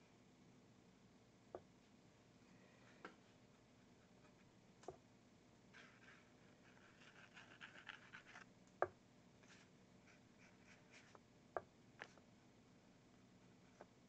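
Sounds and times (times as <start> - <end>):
paintbrush scratching on canvas: 5.8 - 8.4, 9.4 - 11.2.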